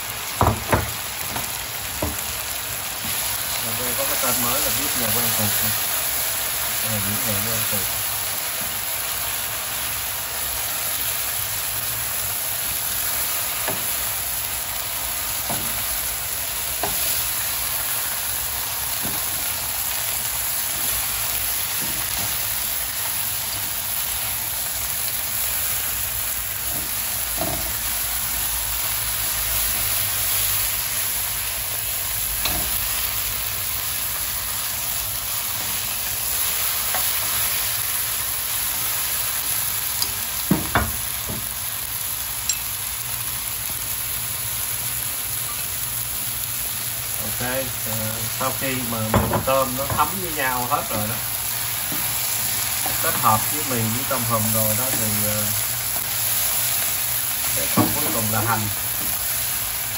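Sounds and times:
food sizzling in a wok: 0.0 - 59.9
utensils knocking on pan: 0.4 - 2.3, 13.6 - 14.0, 15.4 - 15.8, 19.0 - 19.4, 26.7 - 27.8, 40.4 - 41.5, 49.1 - 50.1, 57.6 - 59.1.

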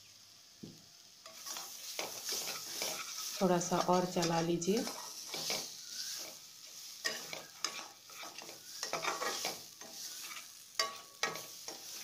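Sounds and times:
light sizzle: 0.0 - 12.0
metal spatula scraping a pan: 1.2 - 12.0.

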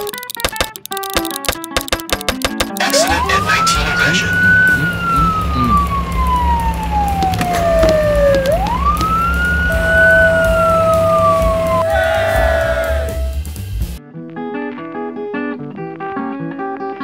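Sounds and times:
plucked acoustic guitar music: 0.0 - 3.0, 14.0 - 17.0
fire engine siren wailing: 2.8 - 13.4
low engine rumble: 3.0 - 14.0.

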